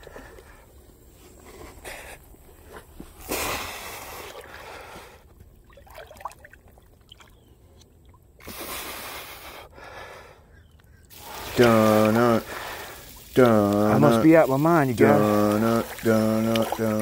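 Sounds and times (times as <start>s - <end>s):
water sloshing and splashing: 5.3s - 8.4s, 11.1s - 17.0s.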